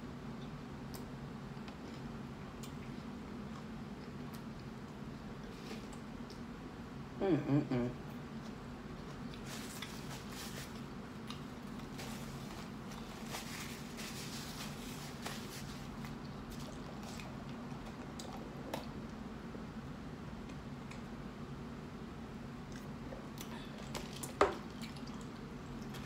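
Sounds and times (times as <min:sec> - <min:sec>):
low room hum: 0:00.0 - 0:26.0
person chewing food: 0:08.3 - 0:19.2.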